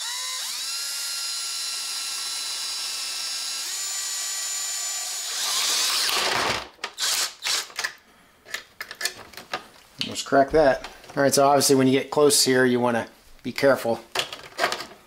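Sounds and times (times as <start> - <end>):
cordless drill motor whine: 0.0 - 6.4
drill bit cutting plastic: 0.0 - 7.8.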